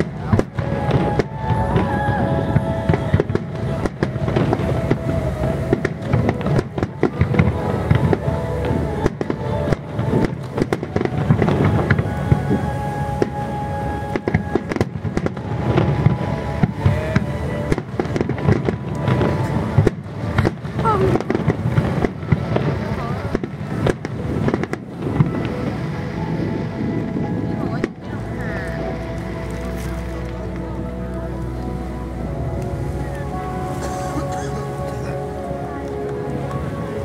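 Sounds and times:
firework booms and crackles: 0:00.0 - 0:29.5
music playing: 0:00.0 - 0:37.0.

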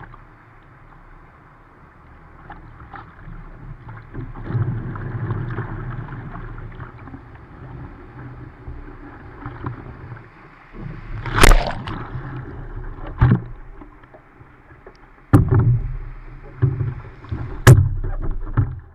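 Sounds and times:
surf washing against a boat bow: 0:02.3 - 0:18.9
loud water splashes: 0:11.2 - 0:12.3.

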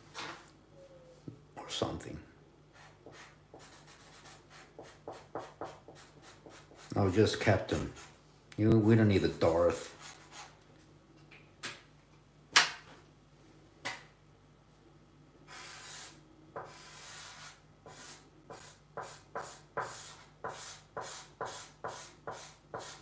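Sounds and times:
marker scratching on paper: 0:02.8 - 0:06.9, 0:09.2 - 0:10.6, 0:15.5 - 0:23.0.

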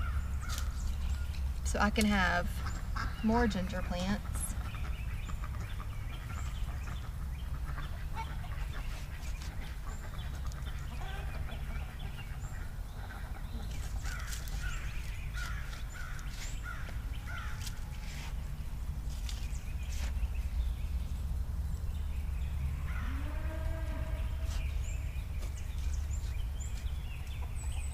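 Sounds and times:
low steady rumble: 0:00.0 - 0:27.9
poultry calling: 0:02.2 - 0:18.3, 0:22.7 - 0:25.4.

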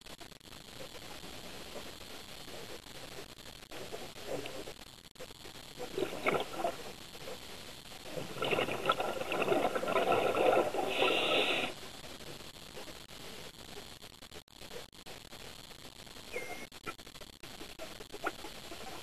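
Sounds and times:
regulator bubbles underwater: 0:05.8 - 0:06.9, 0:08.0 - 0:11.8.

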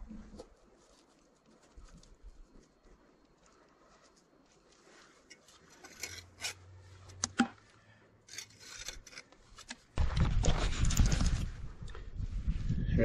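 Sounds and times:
trowel scraping mortar on stone: 0:05.1 - 0:07.5, 0:08.2 - 0:09.9.

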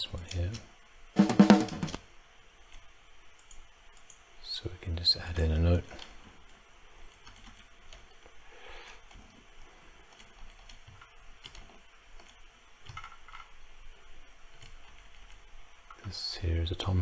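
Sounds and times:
mouse and keyboard clicks: 0:10.1 - 0:13.5.

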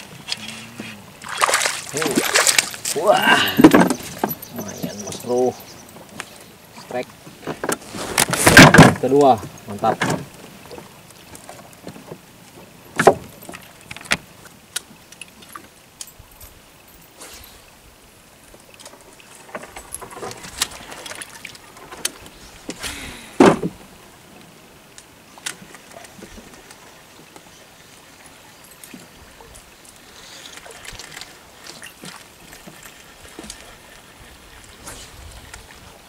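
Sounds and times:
water lapping around boat: 0:00.0 - 0:36.0.

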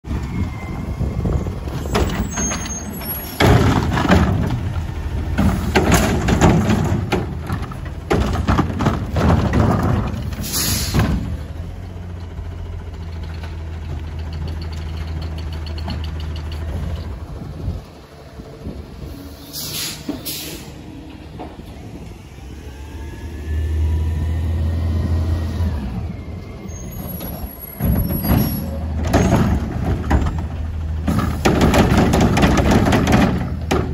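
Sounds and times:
trash carts clattering: 0:00.0 - 0:18.0, 0:25.9 - 0:33.9
garbage truck diesel engine: 0:00.0 - 0:33.9
air brakes hissing: 0:10.4 - 0:11.2, 0:19.0 - 0:20.9.

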